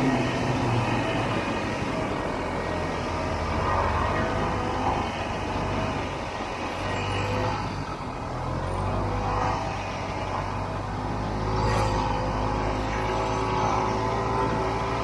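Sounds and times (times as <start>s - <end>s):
snowmobile engine running: 0.0s - 15.0s.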